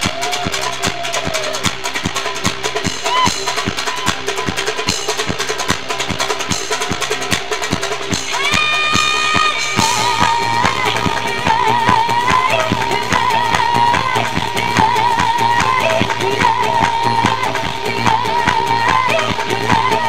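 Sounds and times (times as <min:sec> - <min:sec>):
high wavering vocals: 0:00.0 - 0:05.4, 0:06.4 - 0:20.0
drum beat: 0:00.0 - 0:20.0
low bass drone: 0:09.8 - 0:20.0.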